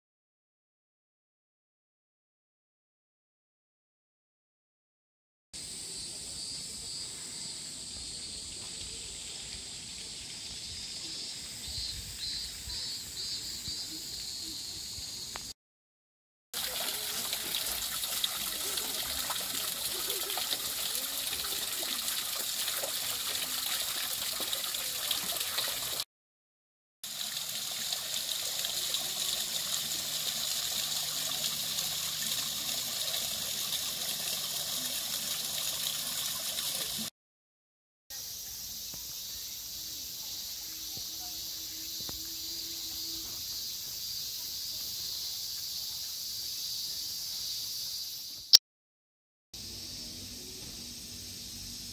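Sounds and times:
high-pitched hiss: 0:05.6 - 0:15.6, 0:38.1 - 0:48.6, 0:49.6 - 0:51.9
water splashing into pond: 0:16.6 - 0:26.0, 0:27.0 - 0:37.1.

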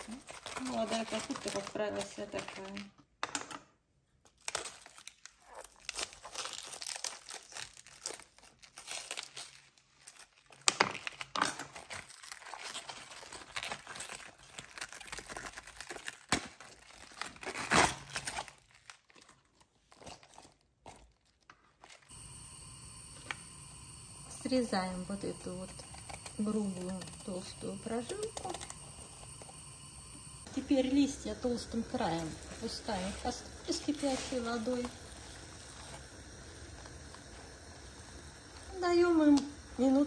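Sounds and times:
cabbage leaves rustling and cracking: 0:00.0 - 0:02.8, 0:04.4 - 0:22.1.

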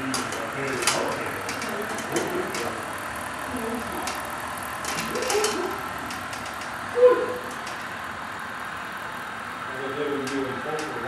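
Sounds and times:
light clicks of train: 0:00.0 - 0:02.8, 0:10.2 - 0:11.0
model train humming: 0:00.0 - 0:11.0.

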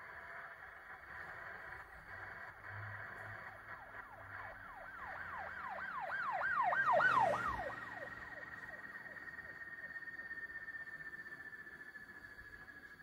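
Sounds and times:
thin steady whine: 0:00.0 - 0:13.0.

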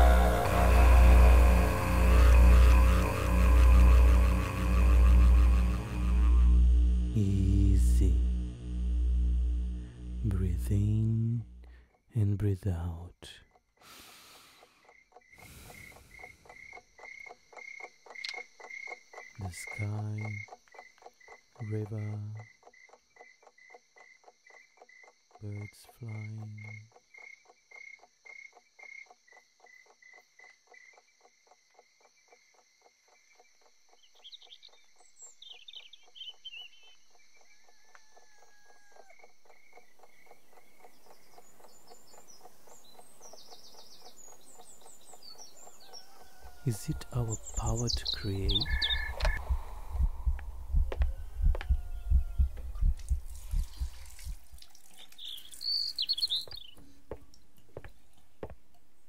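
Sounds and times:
deep low calls: 0:00.0 - 0:13.2, 0:46.5 - 0:54.6
birds chirping: 0:00.0 - 0:22.4, 0:33.1 - 0:38.4, 0:39.1 - 0:59.0
crickets chirping: 0:00.0 - 0:56.8.

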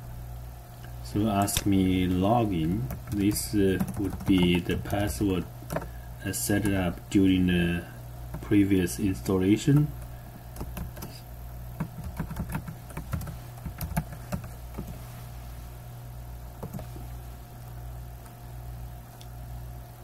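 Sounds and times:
keyboard keys clicking: 0:02.8 - 0:05.9, 0:11.8 - 0:14.9.

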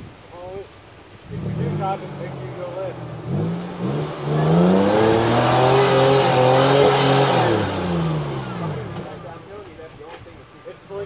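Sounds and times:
truck engine revving: 0:01.3 - 0:09.7.

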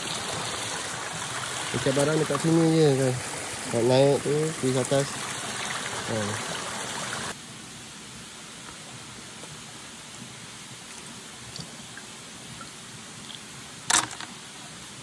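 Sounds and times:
stream running over rocks: 0:00.0 - 0:07.4.

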